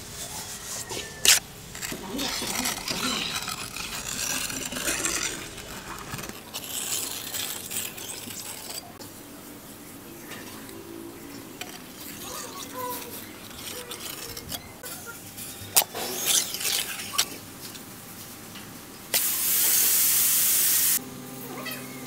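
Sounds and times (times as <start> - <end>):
loud spraying hiss: 19.2 - 21.0.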